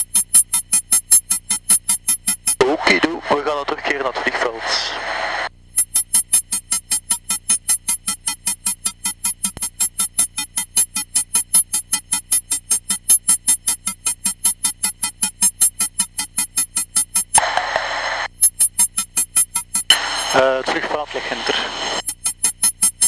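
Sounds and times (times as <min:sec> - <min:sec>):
rapid electronic beeping: 0:00.0 - 0:04.4, 0:05.8 - 0:17.4, 0:18.3 - 0:21.3, 0:22.0 - 0:23.0.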